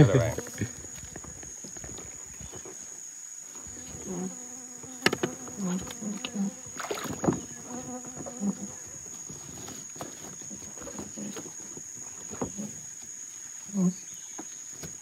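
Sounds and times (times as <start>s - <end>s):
flying insect buzzing: 0.0s - 12.9s
sharp knocks and rustles: 4.8s - 13.3s.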